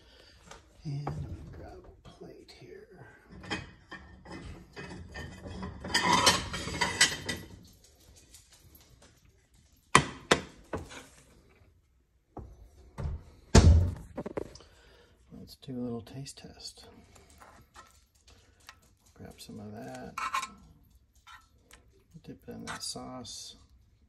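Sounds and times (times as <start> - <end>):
dishes and utensils clattering: 3.2 - 8.1, 17.3 - 22.0.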